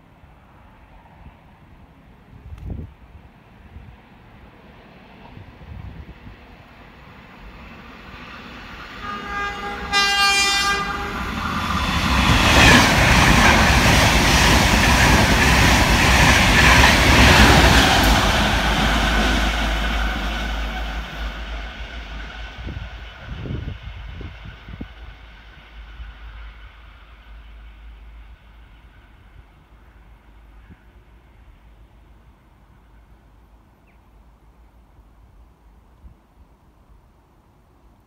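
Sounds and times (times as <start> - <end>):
diesel locomotive engine: 0.0 - 37.9
train wheels on rails: 4.6 - 30.5
train horn blast: 9.0 - 11.5.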